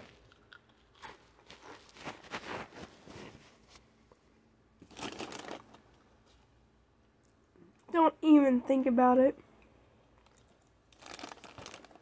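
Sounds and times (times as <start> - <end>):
crunching snacks and bag rustling: 4.8 - 5.8, 10.2 - 12.0.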